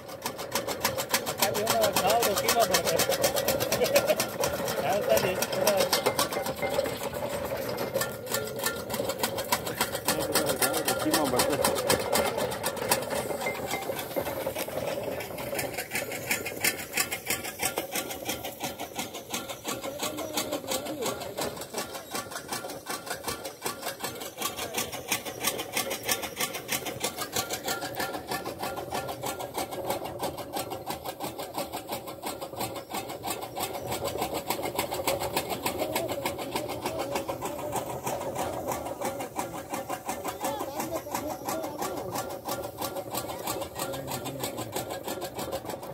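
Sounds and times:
chaff cutter gearing clattering: 0.0 - 45.9.

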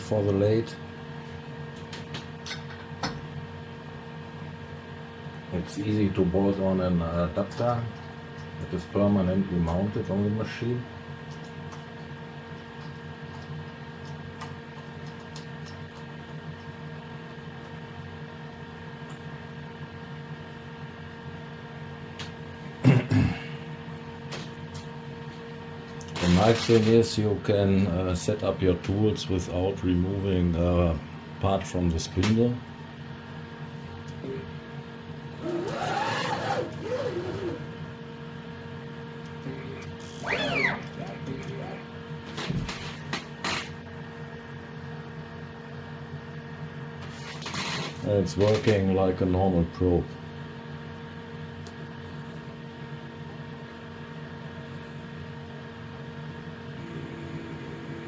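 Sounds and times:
machine hum: 0.0 - 58.0
drive motors whining: 35.3 - 37.9, 39.6 - 41.4.

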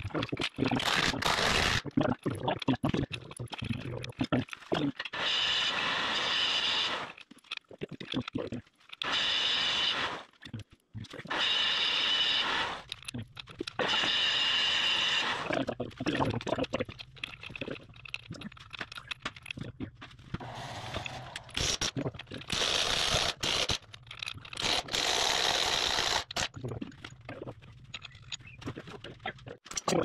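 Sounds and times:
power wrench running: 0.8 - 1.8, 5.1 - 7.2, 9.0 - 10.3, 11.3 - 12.9, 13.8 - 15.5, 20.4 - 23.8, 24.6 - 26.5.

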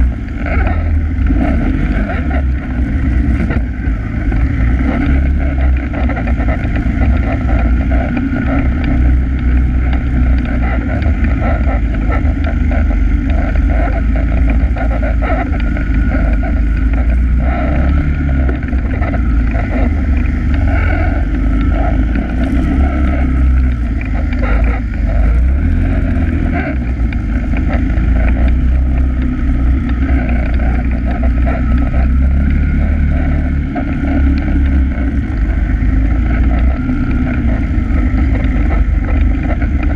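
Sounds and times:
atv engine droning: 0.0 - 39.9.

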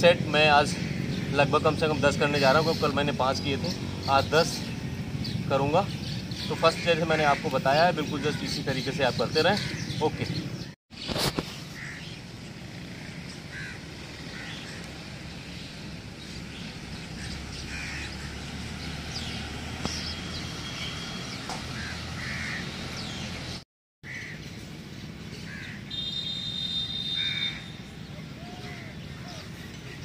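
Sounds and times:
crows cawing: 6.8 - 8.6, 11.8 - 12.2, 13.0 - 14.9, 17.2 - 18.5, 21.7 - 22.7, 24.0 - 24.4, 25.5 - 25.8, 27.1 - 27.7.

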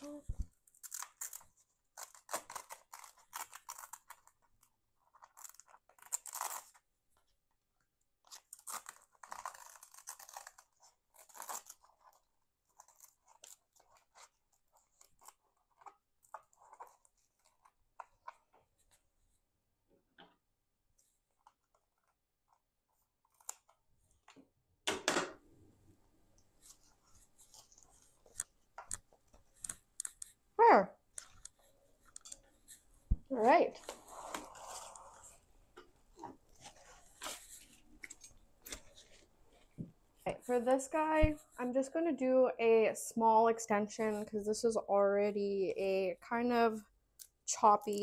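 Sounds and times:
velcro ripping: 0.7 - 6.8, 8.2 - 18.4, 23.2 - 23.8, 33.8 - 35.4
small clicks and rustles: 31.1 - 32.9.

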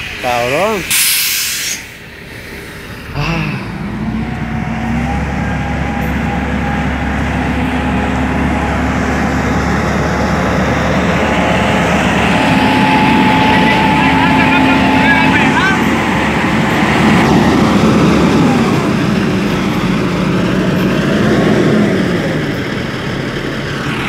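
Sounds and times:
truck diesel engine revving: 0.0 - 24.0
loud hiss of air: 0.9 - 2.9.

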